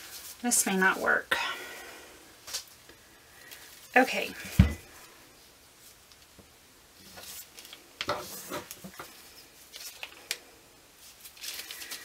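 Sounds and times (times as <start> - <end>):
plastic piping bag crinkling: 7.2 - 12.0.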